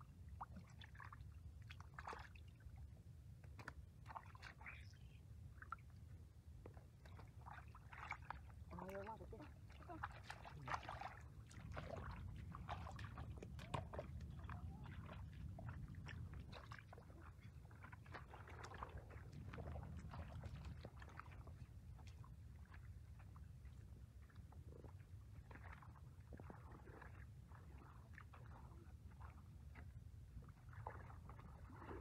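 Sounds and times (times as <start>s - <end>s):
bare feet squelching through mud: 7.1s - 22.8s
steady low rumble: 8.4s - 25.6s.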